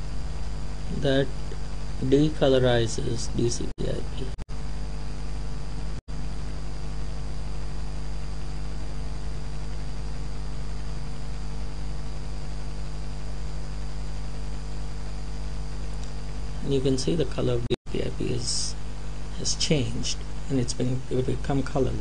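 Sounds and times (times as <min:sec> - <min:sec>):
electrical mains hum: 0:00.0 - 0:22.0
person narrating: 0:00.9 - 0:01.3, 0:02.0 - 0:04.4, 0:16.6 - 0:18.8, 0:19.4 - 0:22.0.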